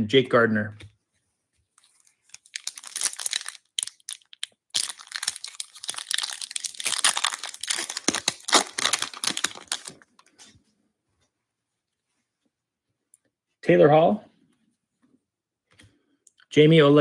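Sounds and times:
foil wrapper crinkling: 1.8 - 10.3
foil wrapper tearing: 2.0 - 10.1.

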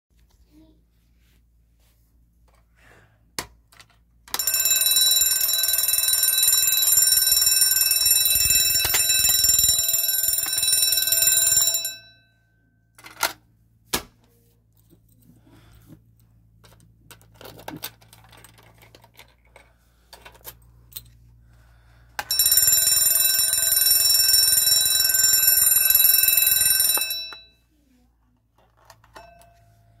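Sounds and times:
fire alarm bell ringing: 4.3 - 12.6, 22.2 - 27.5, 29.2 - 30.0.

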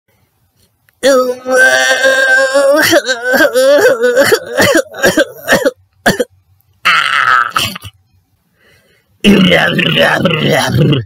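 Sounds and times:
person making comic noises: 1.0 - 5.5, 6.8 - 8.0.

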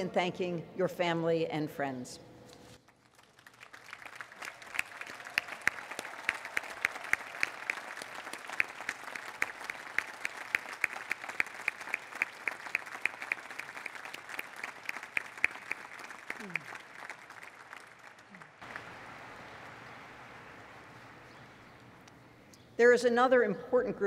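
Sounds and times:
crowd applauding: 2.8 - 22.0.

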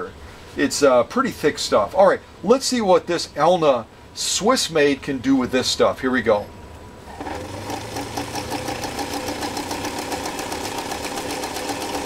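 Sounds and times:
sewing machine motor hum: 7.1 - 12.0
sewing machine needle ticking: 7.5 - 12.0.

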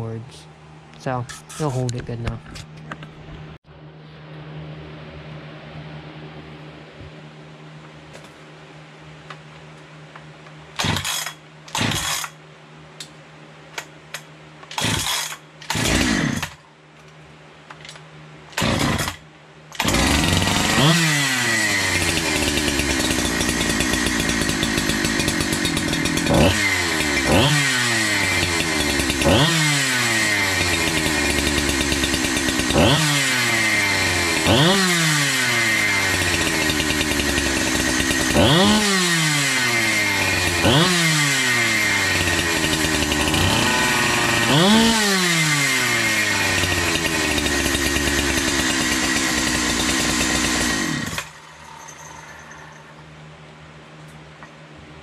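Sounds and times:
chainsaw pull-start cranking: 10.8 - 12.4, 14.7 - 16.6, 18.5 - 52.6
chainsaw throttle revving: 10.8 - 12.4, 14.7 - 16.6, 18.5 - 51.5.

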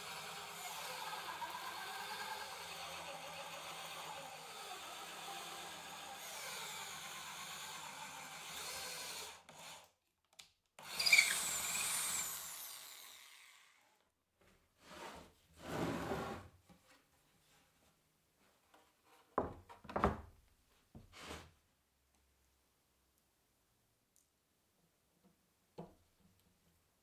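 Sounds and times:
drill boring into plywood: 0.0 - 9.9, 10.8 - 13.9
plywood panel scraping on bench: 14.8 - 16.5, 21.1 - 21.5.

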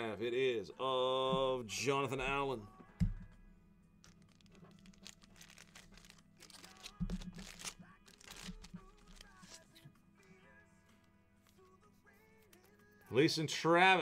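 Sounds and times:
wrappers crinkling and tearing: 4.0 - 9.6
cards sliding: 4.1 - 9.6.

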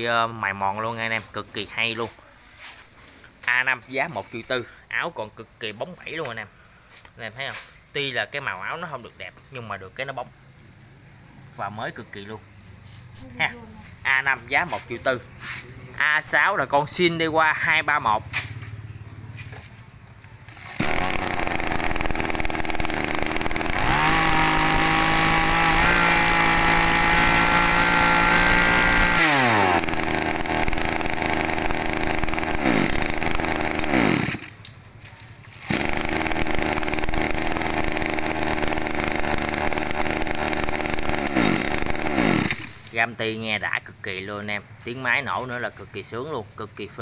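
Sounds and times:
brush cutter engine revving: 20.5 - 34.7, 35.6 - 43.0.

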